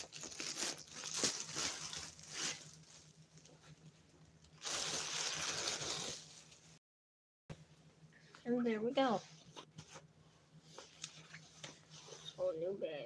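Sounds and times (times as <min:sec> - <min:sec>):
packaging tearing: 0:00.0 - 0:02.8, 0:04.6 - 0:06.2.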